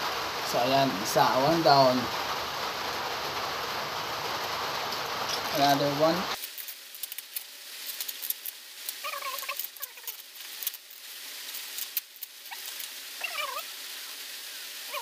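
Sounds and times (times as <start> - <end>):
plastic and paper crinkling: 6.3 - 13.6
short squeaky calls: 8.9 - 10.2, 12.4 - 13.7.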